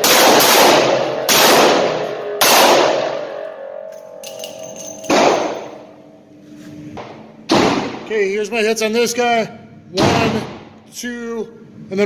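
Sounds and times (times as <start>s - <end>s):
revolver gunshots echoing: 0.0s - 3.8s, 4.5s - 5.8s, 7.5s - 8.1s
sharp bang: 4.9s - 5.8s.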